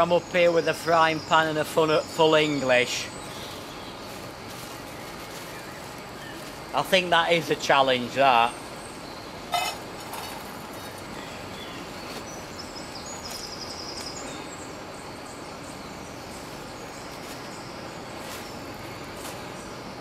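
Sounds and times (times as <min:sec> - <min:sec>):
small bird chirping: 0:08.4 - 0:19.9.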